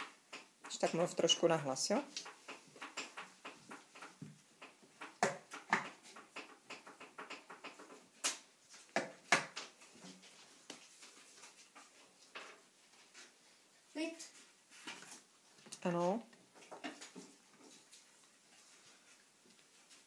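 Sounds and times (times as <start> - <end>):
magnets clicking on whiteboard: 0.0 - 1.4, 2.0 - 9.8.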